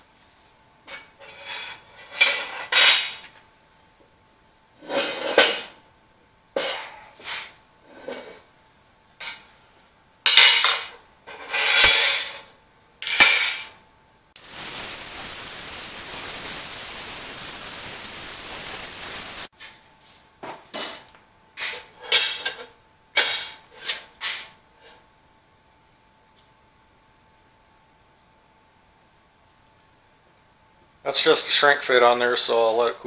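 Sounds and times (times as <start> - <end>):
gas torch hissing: 14.4 - 19.5.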